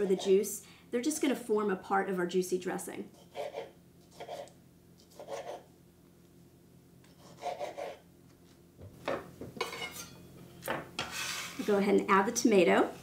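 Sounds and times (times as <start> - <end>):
serrated knife sawing tomato: 3.1 - 5.7, 7.1 - 8.0.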